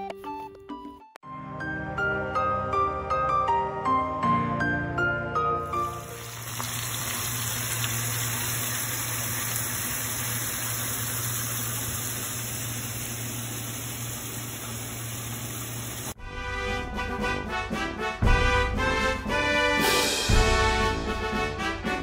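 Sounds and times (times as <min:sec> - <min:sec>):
brass music: 0:16.2 - 0:22.0.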